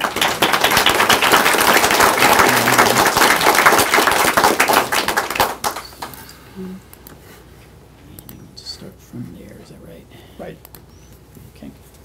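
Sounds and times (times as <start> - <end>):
audience clapping: 0.0 - 6.2.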